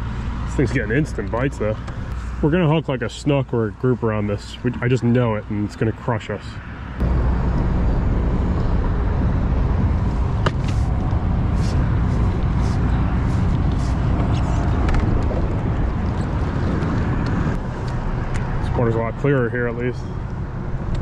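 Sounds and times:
wind buffeting microphone: 0:07.0 - 0:18.8.

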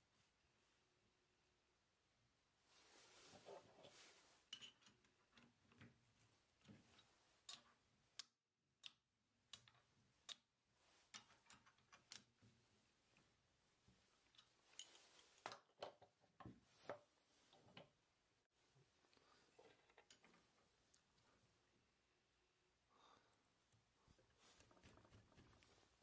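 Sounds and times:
short rustle: 0:02.7 - 0:04.5
metal and wood clicks and taps: 0:06.6 - 0:10.5, 0:11.1 - 0:12.4.

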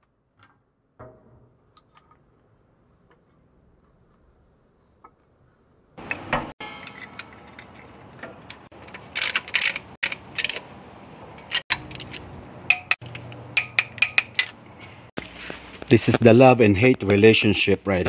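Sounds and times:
metal hand tools clicking: 0:06.0 - 0:10.6
socket ratchet clicking: 0:08.4 - 0:10.7.

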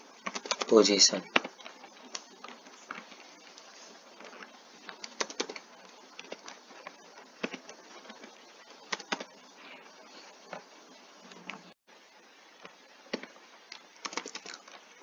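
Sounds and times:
background hiss: 0:00.0 - 0:15.0
keyboard keys clicking: 0:00.2 - 0:00.7, 0:04.9 - 0:05.6, 0:14.0 - 0:14.6.

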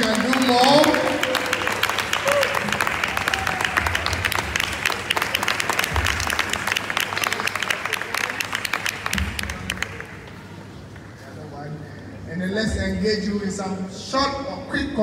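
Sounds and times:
audience applauding: 0:00.0 - 0:10.3.

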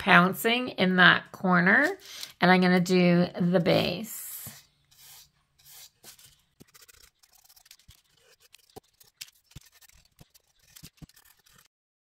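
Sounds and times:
paintbrush tapping and brushing: 0:04.5 - 0:11.6.

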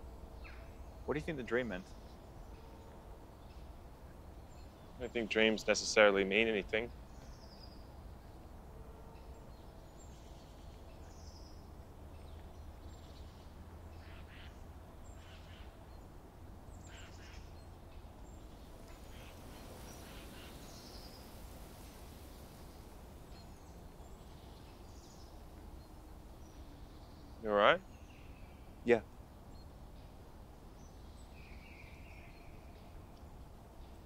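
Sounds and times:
soft hiss: 0:00.0 - 0:34.0
bird calls and chirps: 0:09.2 - 0:16.1, 0:16.7 - 0:28.8, 0:29.4 - 0:34.0.

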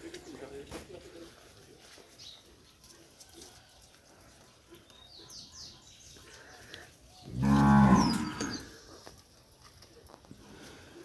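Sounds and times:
cow mooing: 0:07.3 - 0:08.7.

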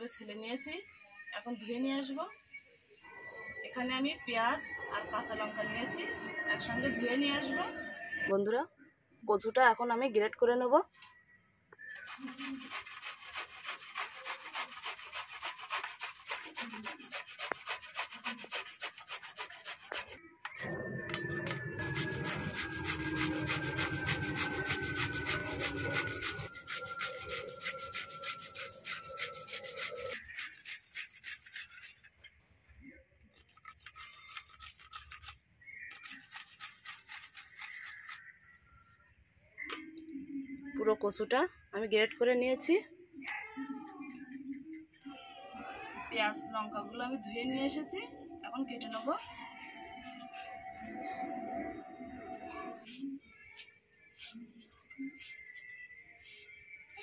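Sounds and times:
root rasping on metal grater: 0:12.0 - 0:20.2, 0:21.8 - 0:32.2, 0:33.3 - 0:38.2.

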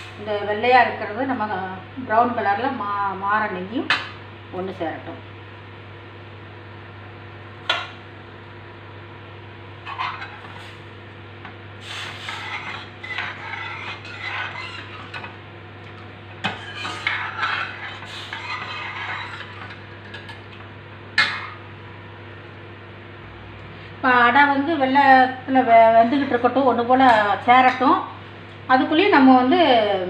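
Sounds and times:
ladle scraping in a pan: 0:09.8 - 0:11.0, 0:11.8 - 0:15.4, 0:16.4 - 0:20.3.

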